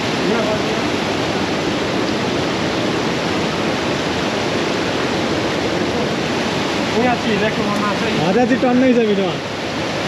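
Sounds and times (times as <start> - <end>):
river water rushing: 0.0 - 10.0.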